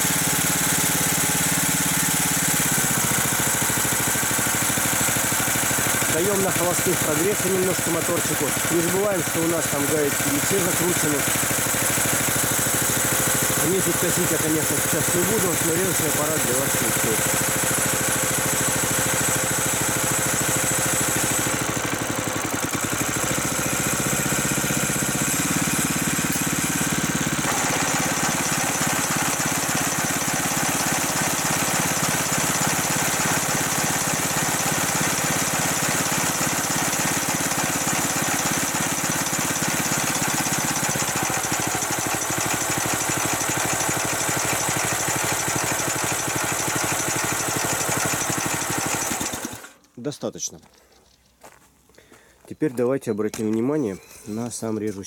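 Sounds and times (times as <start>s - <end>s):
mower engine idling: 0.0s - 50.0s.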